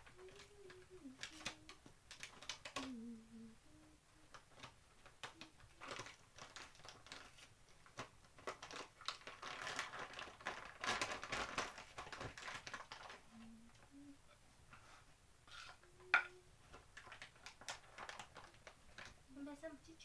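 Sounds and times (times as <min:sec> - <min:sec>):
plastic packet crinkling: 0:00.1 - 0:03.0, 0:04.3 - 0:13.9, 0:16.7 - 0:19.3.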